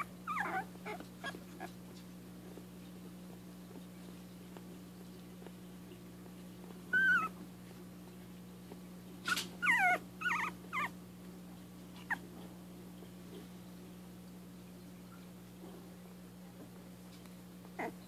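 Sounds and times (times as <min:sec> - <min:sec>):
puppies whimpering: 0:00.0 - 0:01.8, 0:06.9 - 0:07.4, 0:09.3 - 0:11.0, 0:17.8 - 0:18.0.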